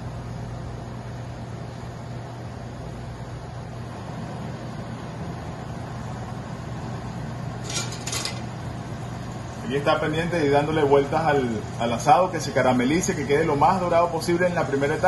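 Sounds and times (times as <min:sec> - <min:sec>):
metal tongs clattering: 0:07.6 - 0:08.5.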